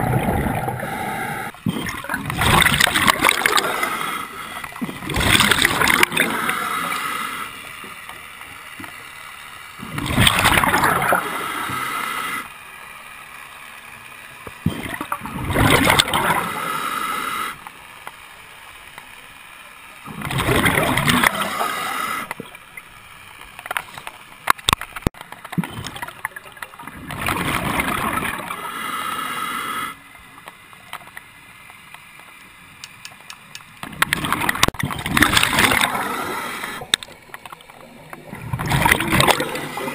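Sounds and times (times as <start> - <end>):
diver breathing through regulator: 0.6 - 1.9, 3.4 - 4.7, 5.9 - 7.7, 11.1 - 12.6, 16.2 - 17.6, 21.3 - 22.4, 28.4 - 30.1, 35.6 - 36.9.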